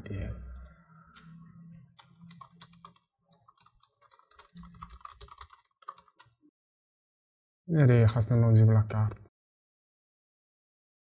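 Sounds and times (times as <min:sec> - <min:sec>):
typing on a keyboard: 0:02.0 - 0:06.3.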